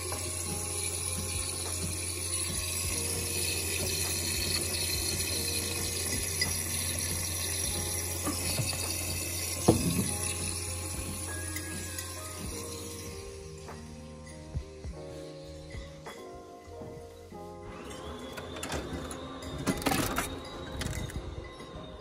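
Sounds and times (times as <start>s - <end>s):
water flowing: 0.0s - 13.7s
coffee machine pump hum: 0.0s - 15.0s.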